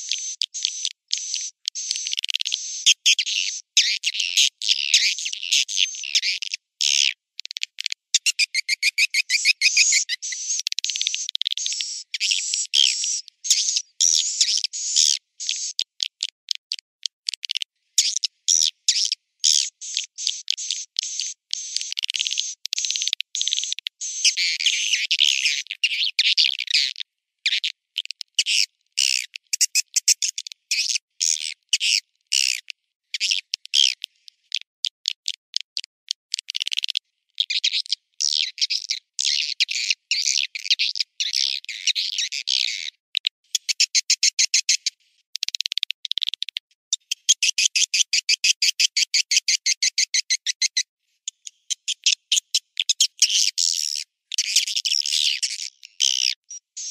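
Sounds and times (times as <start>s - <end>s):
swiftlets twittering and chirping: 0.0s - 6.5s, 8.2s - 15.8s, 18.0s - 26.0s.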